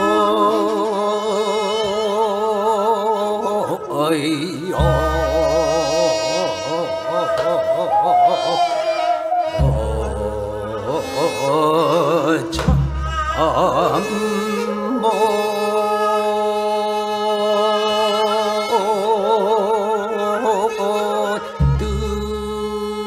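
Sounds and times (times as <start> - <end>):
person singing long notes: 0.0 - 23.0
low instrument stroke: 4.6 - 15.7
low instrumental drone: 4.8 - 15.7.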